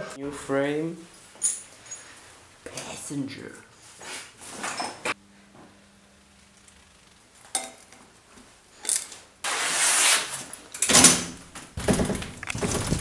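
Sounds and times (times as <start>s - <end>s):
bike clattering and knocking: 11.5s - 13.0s.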